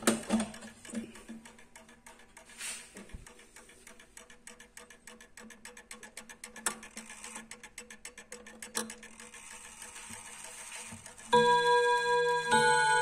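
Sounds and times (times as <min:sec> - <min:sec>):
clock ticking rapidly: 0:00.0 - 0:13.0
clock gong rods humming: 0:11.3 - 0:13.0.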